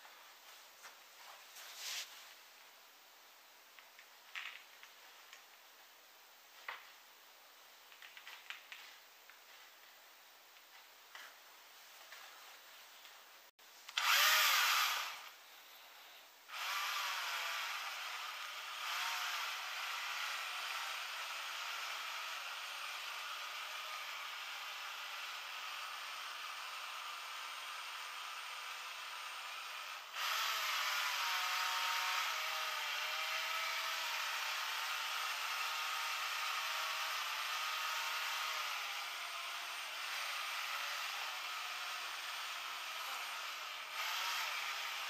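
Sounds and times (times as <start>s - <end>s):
cordless screwdriver motor spinning: 13.9s - 15.3s, 16.5s - 45.0s.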